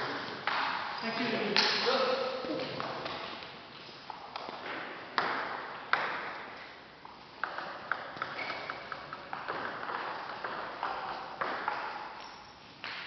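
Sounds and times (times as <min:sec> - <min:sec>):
table tennis ball bouncing: 0:00.0 - 0:01.0, 0:04.1 - 0:13.0
table tennis rally: 0:00.0 - 0:13.0.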